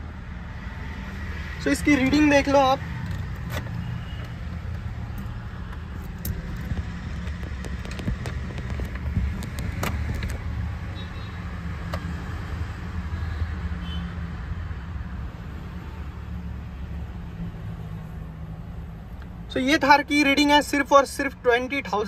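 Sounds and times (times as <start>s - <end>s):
low engine hum: 0.0s - 12.9s.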